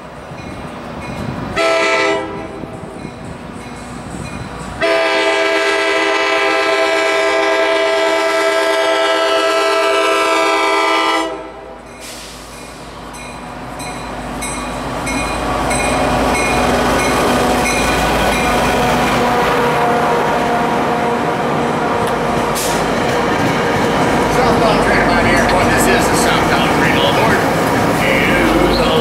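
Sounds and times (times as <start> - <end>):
locomotive engine passing: 0.0 - 29.0
train coaches rolling past: 0.0 - 29.0
train horn: 1.6 - 2.9, 4.8 - 11.8, 19.2 - 22.8
crossing bell dinging: 11.8 - 18.8, 24.3 - 29.0.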